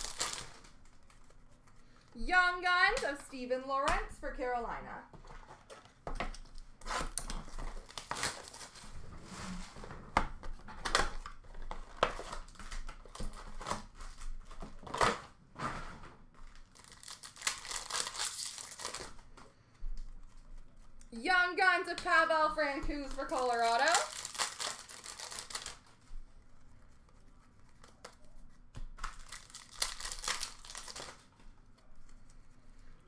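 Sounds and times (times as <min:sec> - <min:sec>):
card pack wrappers ripping: 0:00.0 - 0:01.4, 0:06.8 - 0:08.8, 0:16.6 - 0:19.2, 0:23.0 - 0:26.0, 0:29.0 - 0:31.3
wrappers crinkling: 0:00.0 - 0:01.8, 0:07.0 - 0:08.9, 0:16.5 - 0:19.3, 0:20.3 - 0:28.4, 0:29.0 - 0:32.2.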